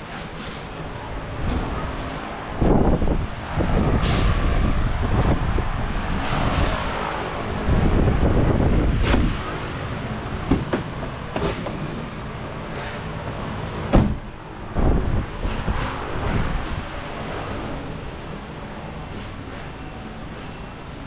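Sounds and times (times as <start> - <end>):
microphone handling rumble: 13.3 - 16.8.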